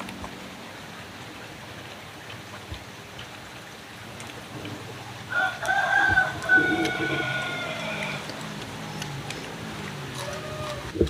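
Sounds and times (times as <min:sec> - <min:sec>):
rooster crowing: 0:05.3 - 0:08.6, 0:10.0 - 0:11.0.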